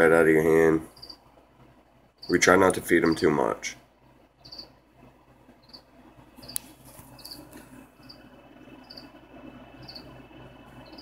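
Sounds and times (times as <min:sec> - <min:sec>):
cricket chirping: 0:00.9 - 0:01.2, 0:04.4 - 0:04.8, 0:05.6 - 0:09.2, 0:09.8 - 0:10.1, 0:10.8 - 0:11.0.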